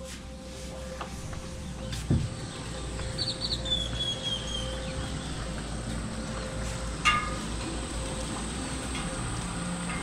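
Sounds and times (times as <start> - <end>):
outdoor background hum: 0.0 - 10.0
bird calling: 1.7 - 5.8.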